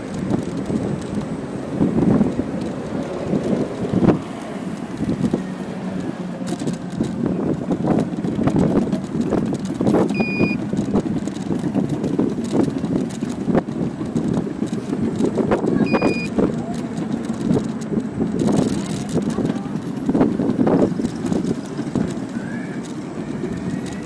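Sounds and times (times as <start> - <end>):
electric scooter rolling on pavement: 0.0 - 24.0
wheels knocking over joints: 0.0 - 24.0
short electronic beep: 10.2 - 10.6, 15.8 - 16.3.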